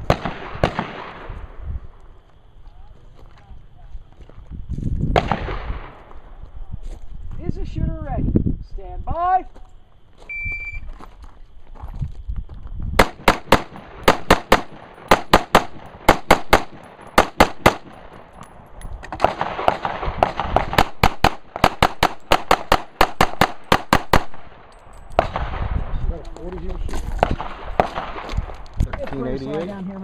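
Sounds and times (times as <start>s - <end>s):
rifle gunshots: 0.0s - 1.3s, 5.2s - 6.0s, 13.0s - 18.3s, 19.2s - 25.8s, 27.2s - 28.4s.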